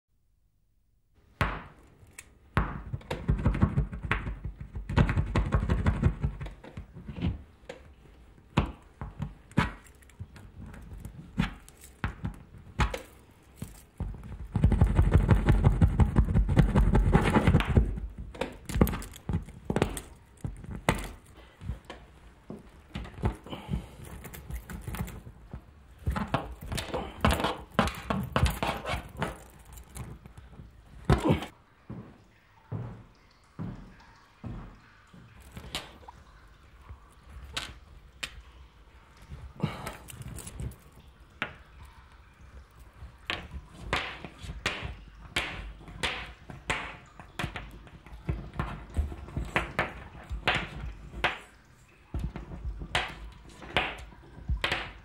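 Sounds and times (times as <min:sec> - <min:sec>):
sharp knocks and taps: 0:01.4 - 0:31.5, 0:43.2 - 0:55.0.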